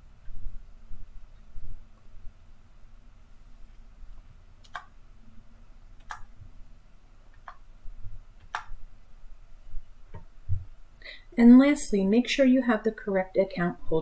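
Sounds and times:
faint room hum: 0:00.0 - 0:14.0
computer mouse clicks: 0:04.6 - 0:05.0, 0:06.0 - 0:06.3, 0:08.4 - 0:08.8.

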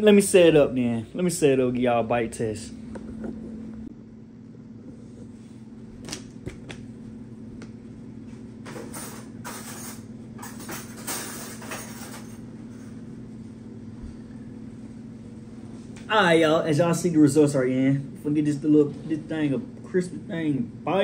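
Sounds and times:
steady low hum: 0:00.0 - 0:21.0
kitchen knocks and clatters: 0:08.6 - 0:12.4.

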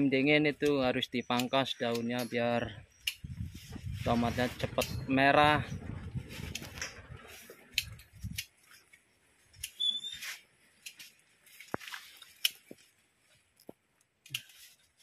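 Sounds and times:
leaf rustling: 0:01.8 - 0:13.6, 0:14.3 - 0:15.0
leaves snipping and snapping: 0:07.7 - 0:08.6, 0:10.8 - 0:12.9, 0:13.6 - 0:14.7
brief high squeak: 0:09.8 - 0:10.4.

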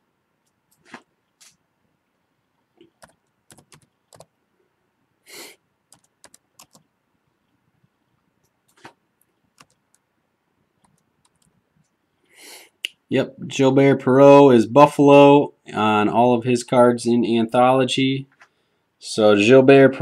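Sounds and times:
computer keyboard typing: 0:02.8 - 0:04.3, 0:05.9 - 0:06.9, 0:09.6 - 0:10.0, 0:10.8 - 0:11.5.

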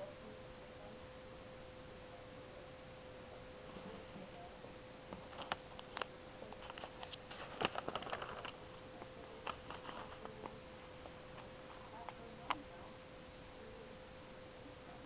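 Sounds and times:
faint steady hum: 0:00.0 - 0:15.0
paper crackling and rustling: 0:05.3 - 0:08.6, 0:09.3 - 0:10.5.

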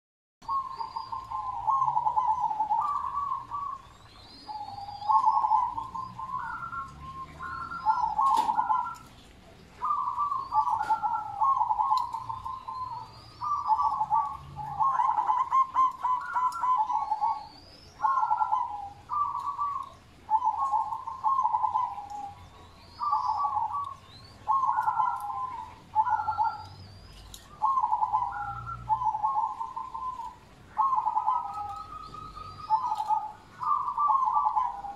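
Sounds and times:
dove cooing: 0:00.4 - 0:34.9.

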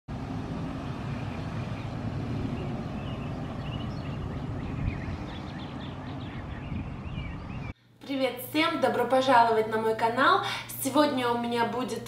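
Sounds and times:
small birds chirping: 0:00.8 - 0:07.8.

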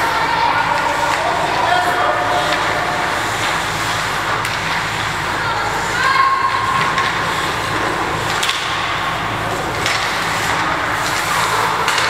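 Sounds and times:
hockey sticks and puck clacking: 0:00.0 - 0:12.0
skates scraping on ice: 0:09.4 - 0:12.0.

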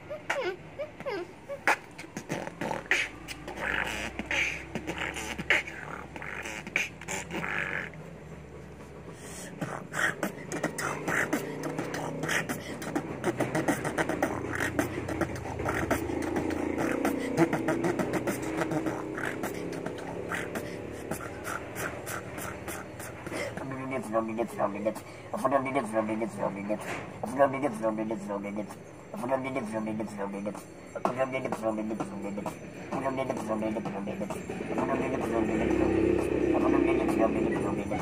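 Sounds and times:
boy beatboxing: 0:00.0 - 0:08.1, 0:09.1 - 0:38.0
low held tone: 0:25.8 - 0:38.0.

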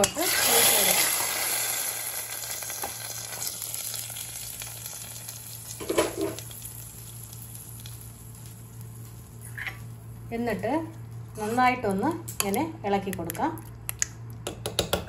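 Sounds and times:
hot oil sizzling: 0:00.0 - 0:10.2
steady low hum: 0:00.0 - 0:15.0.

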